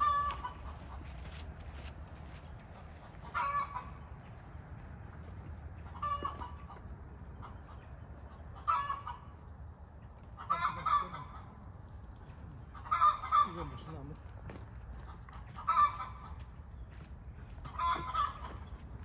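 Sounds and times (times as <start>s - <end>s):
fowl calling: 0.0s - 1.4s, 2.7s - 4.1s, 5.8s - 9.4s, 10.3s - 11.7s, 12.6s - 14.1s, 15.0s - 16.6s, 17.6s - 18.8s.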